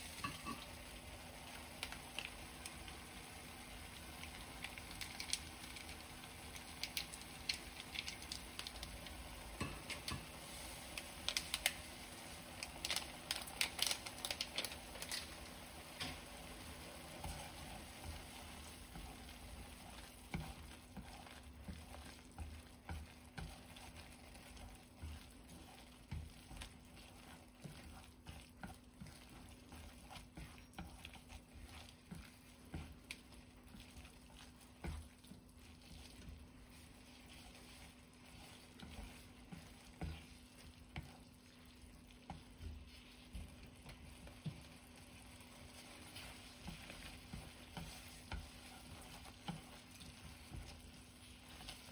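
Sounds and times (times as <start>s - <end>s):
soft wet sizzle: 0.0s - 51.9s
chopsticks tapping a pan: 0.2s - 0.8s, 9.6s - 10.4s, 17.2s - 36.4s, 38.4s - 41.4s, 42.2s - 51.9s.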